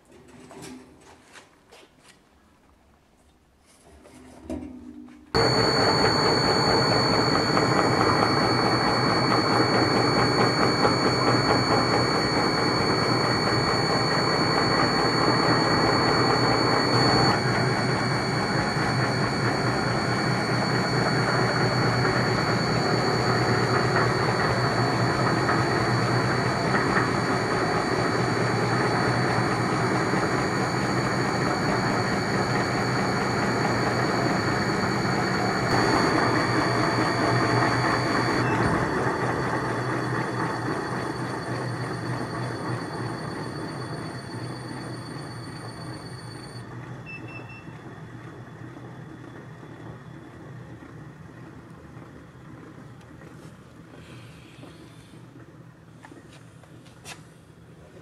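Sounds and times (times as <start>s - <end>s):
extractor machine whirring: 5.4s - 47.2s.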